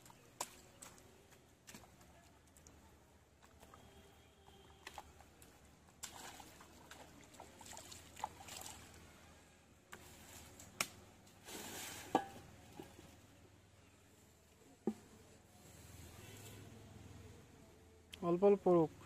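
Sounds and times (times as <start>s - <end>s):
hands squelching wet mud: 0.0s - 9.1s
muddy water splashing: 0.0s - 9.3s.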